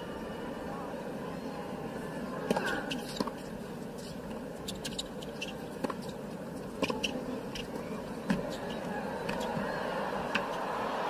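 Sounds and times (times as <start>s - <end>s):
low crowd murmur: 0.0s - 11.0s
sneakers squeaking on court: 2.4s - 9.8s.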